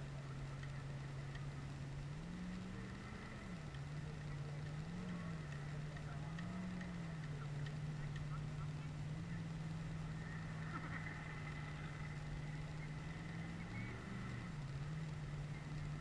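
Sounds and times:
faint engine idling: 0:00.0 - 0:16.0.

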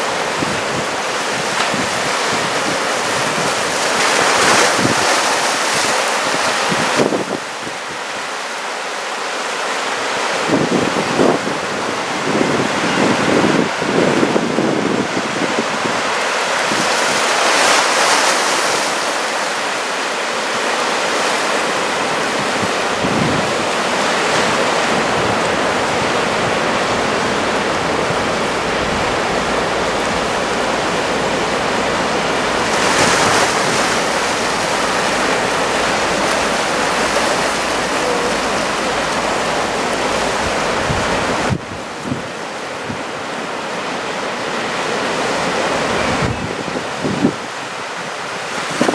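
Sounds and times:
surf breaking on shore: 0:00.0 - 0:48.9
wind buffeting microphone: 0:10.4 - 0:17.0, 0:22.0 - 0:43.6, 0:45.7 - 0:48.9.

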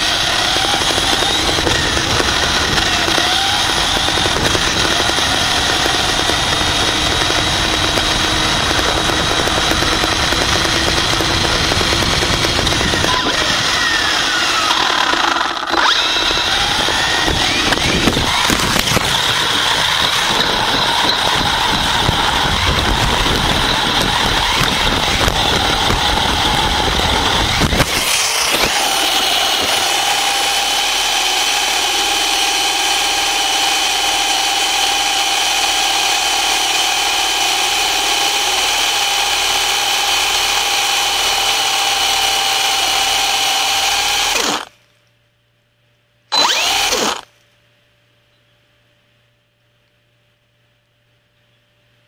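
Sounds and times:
rc buggy motor rumbling: 0:00.0 - 0:44.8, 0:46.3 - 0:47.3
motor whine: 0:00.0 - 0:44.9, 0:46.3 - 0:47.4
rc car crash: 0:17.1 - 0:26.6, 0:27.2 - 0:29.9.

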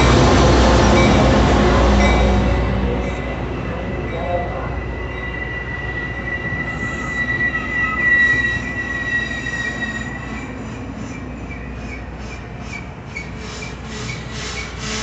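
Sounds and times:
rhythmic clicking of train wheels: 0:00.0 - 0:15.0
train wheels squealing: 0:02.0 - 0:15.0.

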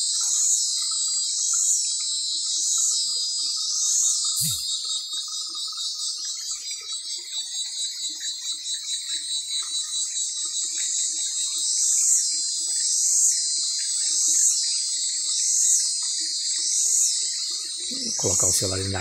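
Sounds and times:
rhythmic insect call: 0:00.0 - 0:19.0
cicadas buzzing: 0:03.7 - 0:07.2, 0:11.6 - 0:19.0.

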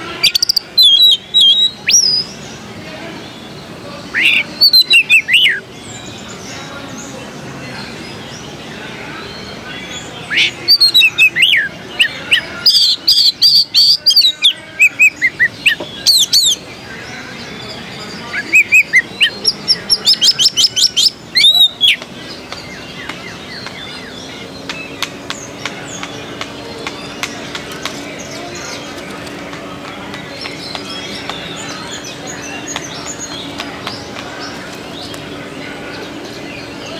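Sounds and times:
steady background noise: 0:00.0 - 0:36.9
bird singing whistled notes: 0:00.2 - 0:02.5, 0:04.1 - 0:06.5, 0:17.7 - 0:29.1.

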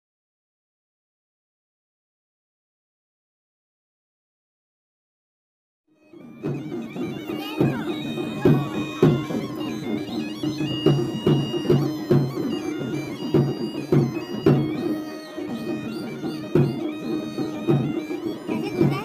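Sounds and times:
bagpipe melody: 0:05.9 - 0:19.0
drum beating: 0:06.0 - 0:19.0.

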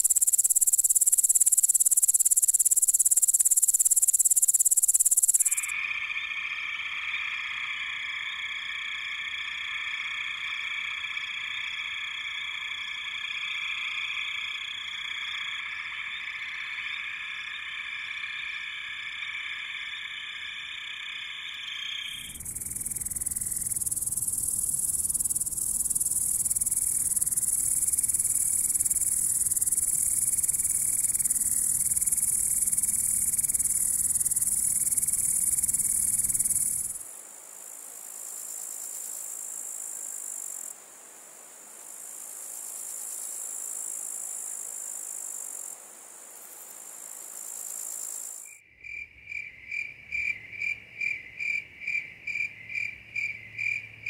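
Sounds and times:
loud high-pitched insect buzz: 0:00.0 - 0:05.7, 0:22.1 - 0:37.0
faint high insect buzz: 0:00.0 - 0:53.8
insect chirps: 0:00.0 - 0:54.0.

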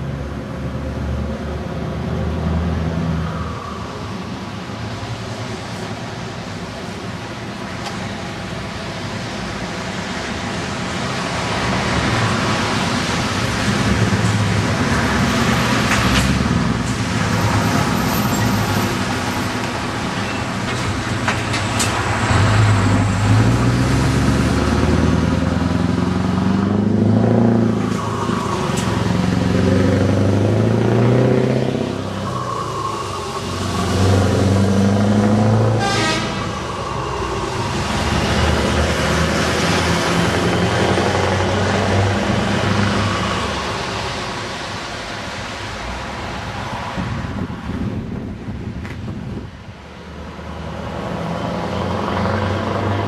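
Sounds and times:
truck engine accelerating through gears: 0:20.7 - 0:45.6, 0:50.5 - 0:53.0.

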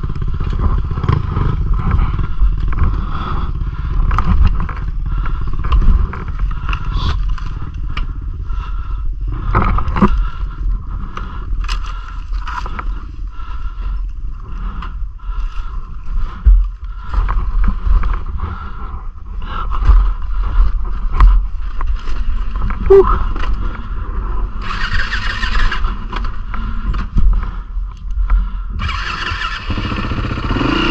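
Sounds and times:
dirt bike engine running: 0:00.0 - 0:19.3, 0:28.4 - 0:30.9.

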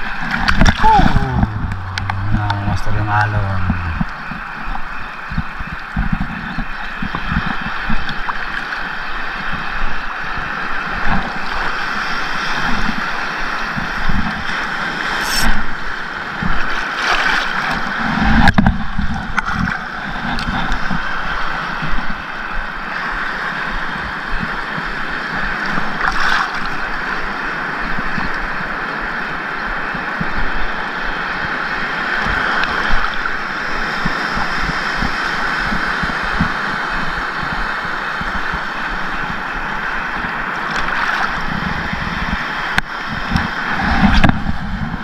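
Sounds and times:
water thumping against camera: 0:00.3 - 0:04.2.

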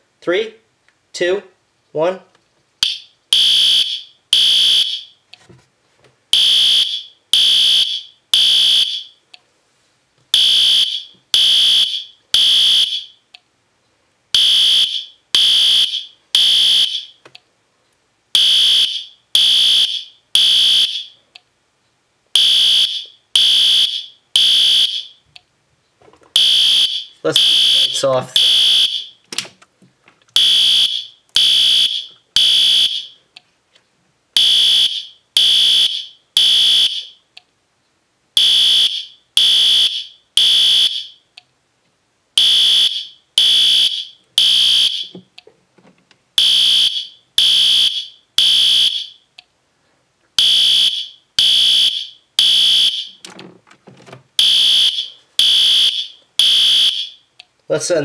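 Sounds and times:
buzzy fire alarm horn blasts: 0:02.8 - 0:05.2, 0:06.4 - 0:09.2, 0:10.4 - 0:13.2, 0:14.4 - 0:17.2, 0:18.4 - 0:21.2, 0:22.4 - 0:25.2, 0:26.4 - 0:29.2, 0:30.4 - 0:33.2, 0:34.4 - 0:37.2, 0:38.4 - 0:41.2, 0:42.4 - 0:45.1, 0:46.4 - 0:49.2, 0:50.4 - 0:53.2, 0:54.4 - 0:57.2.

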